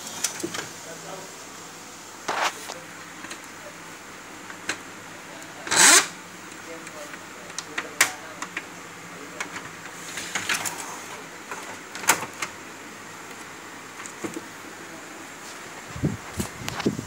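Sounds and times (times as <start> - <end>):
paper rustling: 2.3 - 3.3.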